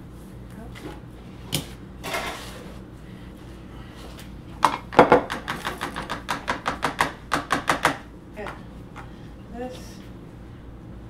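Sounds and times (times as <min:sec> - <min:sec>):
knock on ceramic bowl: 0:04.6 - 0:08.0.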